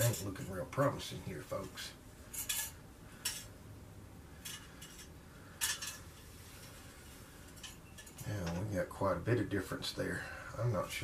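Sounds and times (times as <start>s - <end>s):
light metallic clicks and rustles: 1.6s - 3.6s, 4.4s - 8.8s.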